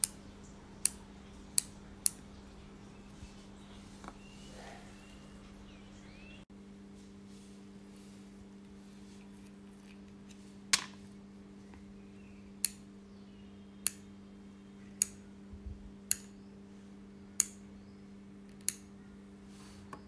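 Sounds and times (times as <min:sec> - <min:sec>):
rotary switch clicking: 0:00.8 - 0:02.2, 0:12.6 - 0:12.8, 0:15.0 - 0:15.2, 0:16.0 - 0:16.4, 0:17.4 - 0:17.6, 0:18.5 - 0:18.9.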